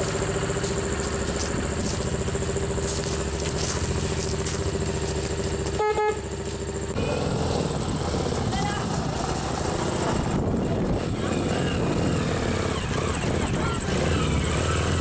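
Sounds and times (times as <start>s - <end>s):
v-twin engine idling: 0.0s - 15.0s
horn toots: 5.7s - 6.3s.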